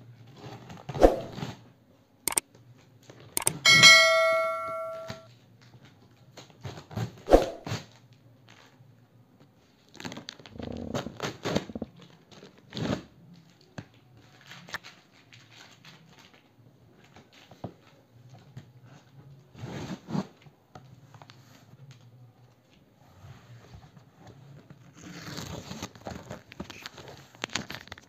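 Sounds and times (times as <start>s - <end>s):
bell-like chime: 3.4s - 5.2s.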